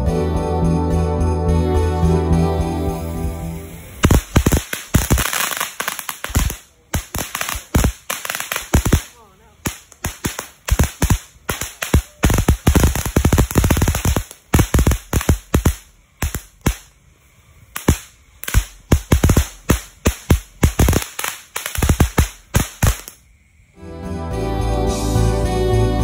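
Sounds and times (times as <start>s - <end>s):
firework fountain hissing: 2.2s - 23.7s
firework crackling pops: 3.2s - 23.3s.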